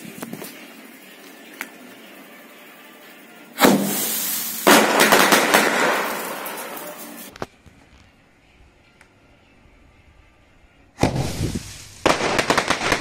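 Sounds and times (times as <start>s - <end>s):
firework shell crackling: 0.0s - 8.1s, 11.0s - 13.0s
firework launching with loud rush: 3.6s - 7.3s, 11.0s - 13.0s.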